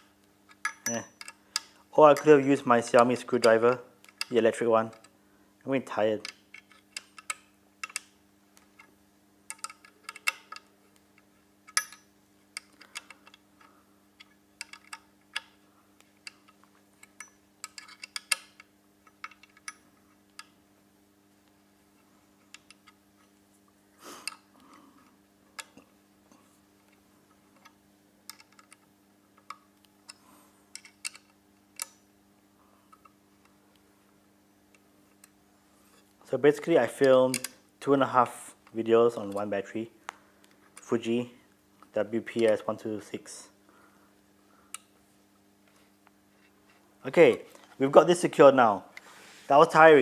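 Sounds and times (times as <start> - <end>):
allen key clicking on bolts: 0.5 - 2.4, 9.5 - 10.7, 11.7 - 13.4.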